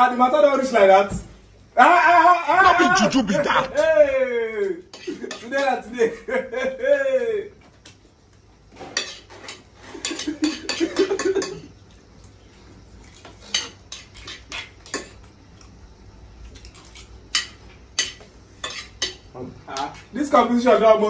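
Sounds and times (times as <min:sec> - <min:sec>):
spoons clinking on ceramic plates: 0:04.9 - 0:05.8, 0:09.0 - 0:11.7, 0:13.1 - 0:15.2, 0:16.6 - 0:20.0.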